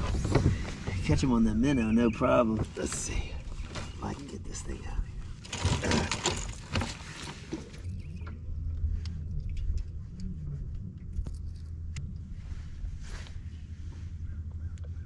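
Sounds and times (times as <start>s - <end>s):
low steady hum: 0.0s - 15.0s
fishing gear clicks and knocks: 5.4s - 8.0s.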